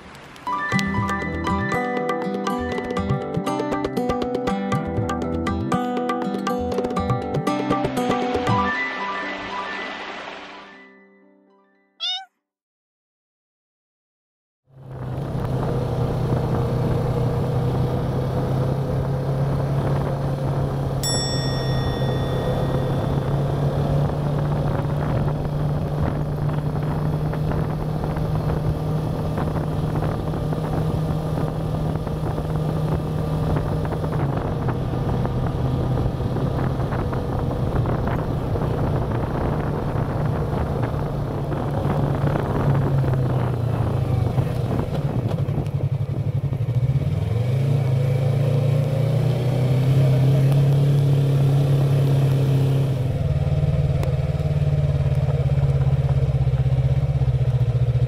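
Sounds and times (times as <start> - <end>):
motorcycle engine running: 14.7 - 58.0.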